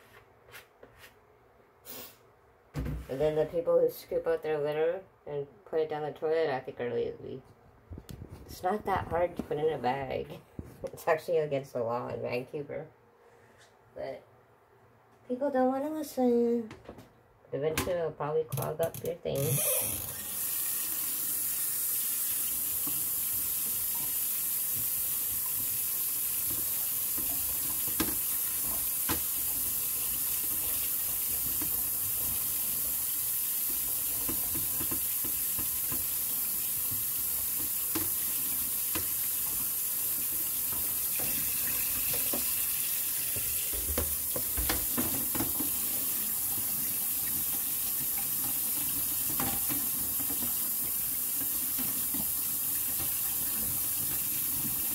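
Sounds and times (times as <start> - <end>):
tap running into sink: 22.0 - 54.9
plastic knocking against sink: 43.3 - 45.7.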